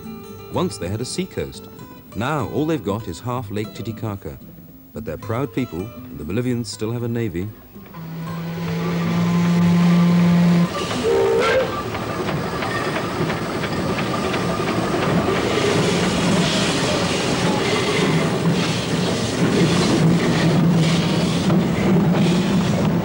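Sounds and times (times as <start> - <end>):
steam locomotive hiss and clatter: 6.7 - 23.0
deep steam whistle: 7.9 - 12.7, 15.3 - 23.0
short higher whistle: 11.0 - 11.8.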